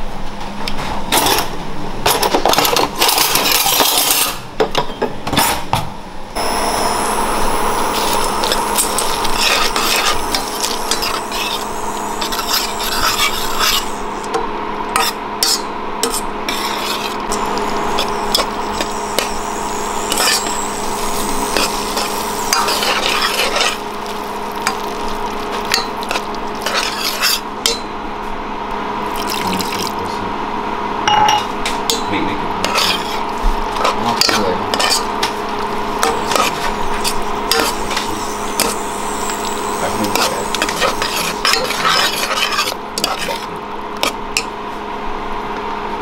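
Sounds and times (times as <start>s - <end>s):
metal spoon scraping a pot: 7.9s - 14.3s, 15.0s - 23.9s, 25.6s - 27.8s, 32.6s - 35.3s, 36.0s - 44.2s
water pouring: 29.1s - 30.0s.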